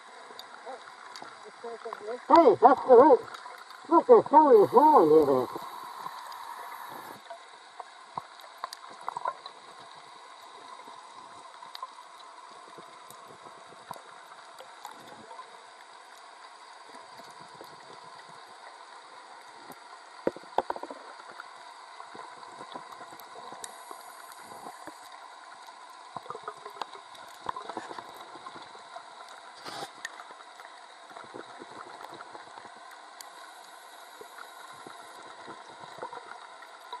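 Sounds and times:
underwater hiss: 4.8 - 7.3, 22.1 - 25.2, 29.4 - 30.3, 33.2 - 36.0.

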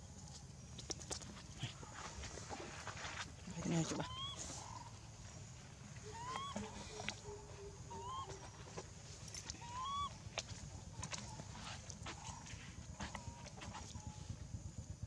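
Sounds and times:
baby monkey squealing coos: 4.0 - 4.6, 6.0 - 7.2, 7.9 - 8.5, 9.5 - 10.1.

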